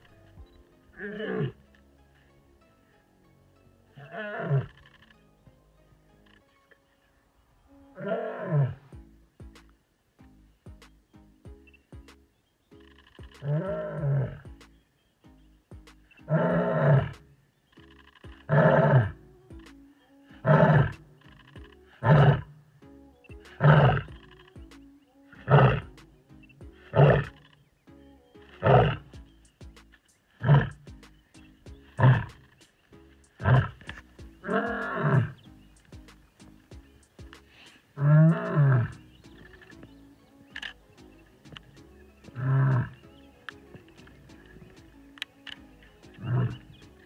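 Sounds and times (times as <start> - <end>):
background music: 0.0 - 47.0
lioness roaring: 4.0 - 4.8, 13.4 - 14.4, 16.3 - 17.2, 18.4 - 19.2, 20.4 - 21.2, 21.9 - 22.6, 23.5 - 24.2, 25.4 - 25.9, 26.8 - 27.5, 28.6 - 29.1, 30.4 - 30.8, 32.0 - 32.4, 33.4 - 35.4, 38.0 - 39.0, 42.3 - 43.0, 46.2 - 46.7.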